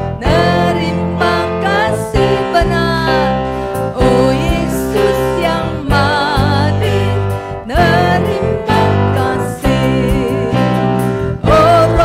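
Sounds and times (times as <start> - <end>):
acoustic guitar: 0.0 - 12.0
electric bass: 0.0 - 12.0
keyboard: 0.0 - 12.0
voices singing together: 0.0 - 12.0.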